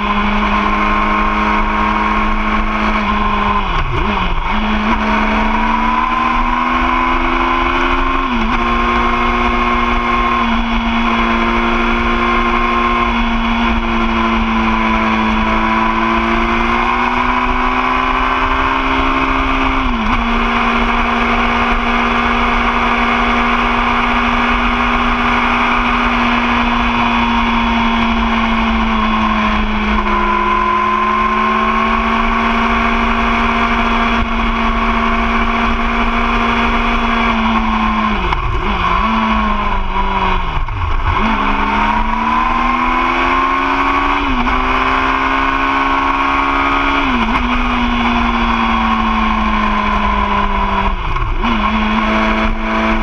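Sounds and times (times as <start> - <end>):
motorcycle engine at speed: 0.0 - 53.0.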